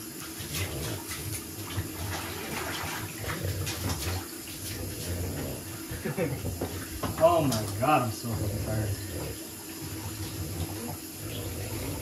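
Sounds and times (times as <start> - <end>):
water splashing in a bathtub: 0.0 - 12.0.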